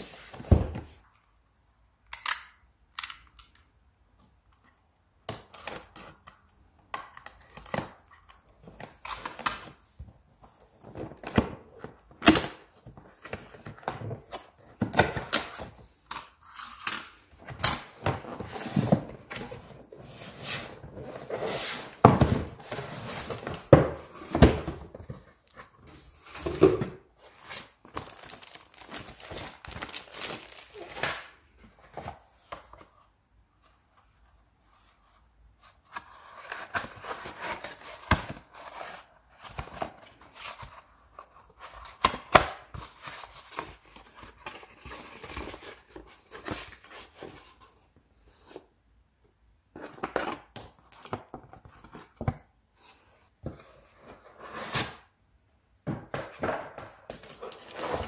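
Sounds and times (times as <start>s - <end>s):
box thumping: 21.9s - 25.1s.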